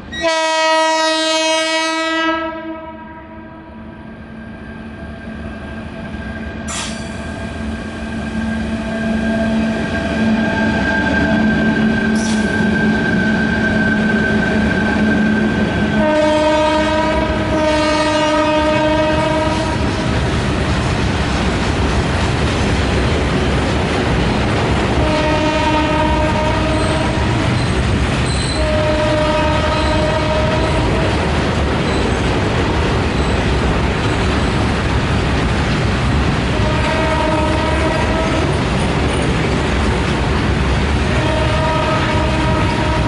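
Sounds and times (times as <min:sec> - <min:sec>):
train wheels rumbling on rail: 0:00.0 - 0:43.0
train horn blasts: 0:00.1 - 0:04.0, 0:15.2 - 0:19.9, 0:25.0 - 0:27.4, 0:28.5 - 0:31.1, 0:36.5 - 0:38.5, 0:41.1 - 0:43.0.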